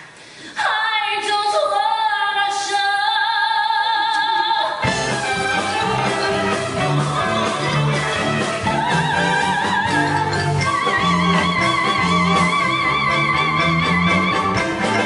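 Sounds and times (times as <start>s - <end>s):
person singing with vibrato: 0.5s - 15.0s
live band playing: 4.8s - 15.0s.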